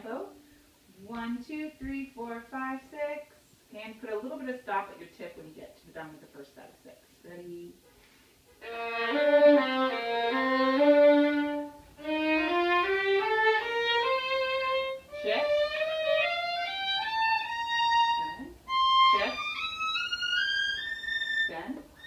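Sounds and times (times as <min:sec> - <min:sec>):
violin playing a scale: 0:08.6 - 0:22.0.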